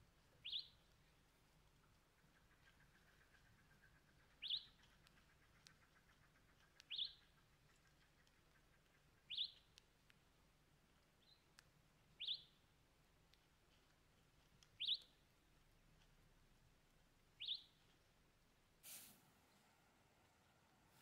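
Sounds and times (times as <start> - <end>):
bird chirping: 0.2 - 10.1, 11.0 - 12.7, 14.6 - 15.4, 17.3 - 18.1.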